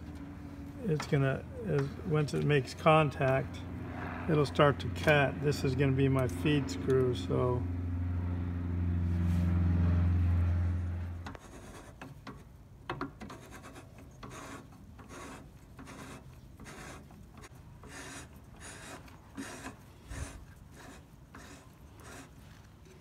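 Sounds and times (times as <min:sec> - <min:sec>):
steady low hum: 0:00.0 - 0:12.0
cutting tool scraping metal: 0:13.2 - 0:22.5.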